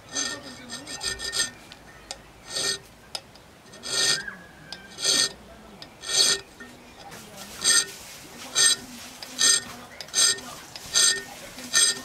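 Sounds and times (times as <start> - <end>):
file rasping on steel blade: 0.0 - 1.6, 2.4 - 2.9, 3.7 - 5.4, 6.0 - 6.5, 7.6 - 12.0.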